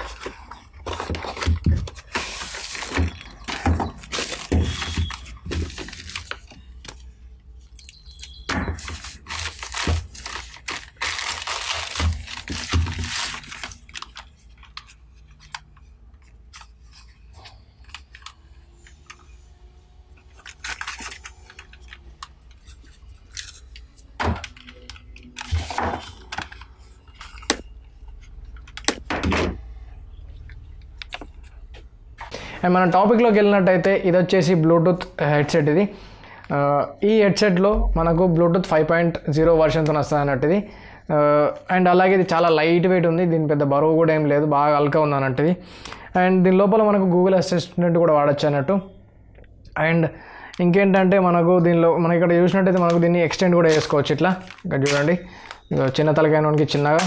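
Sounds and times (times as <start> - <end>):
packaging rustling and crinkling: 0.0 - 7.2, 8.0 - 19.4, 20.0 - 29.0, 52.6 - 57.0
cardboard box tearing: 8.8 - 13.8.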